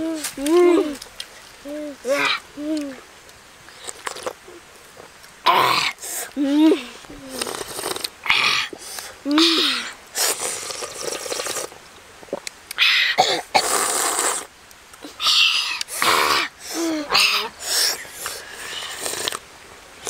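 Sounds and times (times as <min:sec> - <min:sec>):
vocal sounds of relish: 0:01.6 - 0:03.0, 0:05.5 - 0:11.8, 0:12.4 - 0:19.4
loud slurping of broth: 0:07.3 - 0:08.1, 0:10.2 - 0:11.8, 0:13.6 - 0:14.5, 0:18.6 - 0:19.4.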